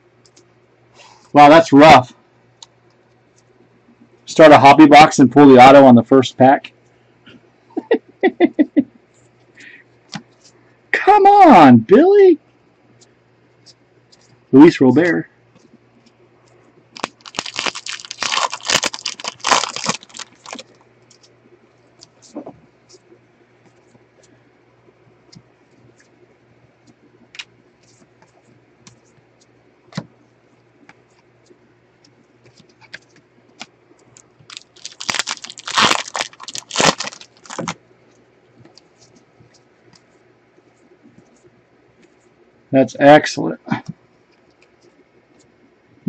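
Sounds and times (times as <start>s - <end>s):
foil wrapper crinkling and tearing: 16.9s - 21.3s, 34.5s - 37.8s.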